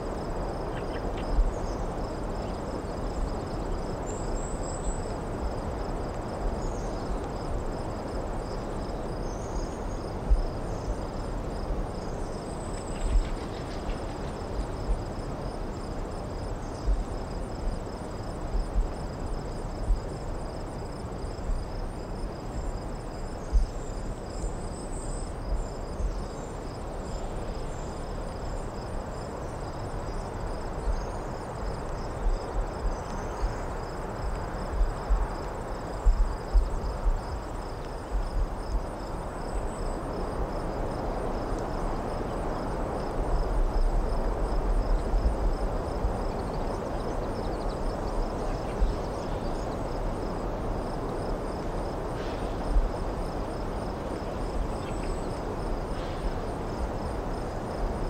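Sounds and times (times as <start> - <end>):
crickets chirping: 0.0 - 58.0.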